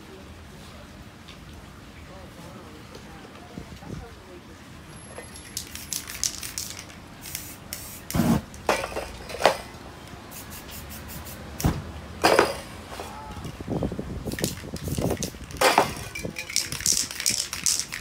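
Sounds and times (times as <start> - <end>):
spray-paint cans hissing: 5.2 - 13.6, 14.2 - 18.0.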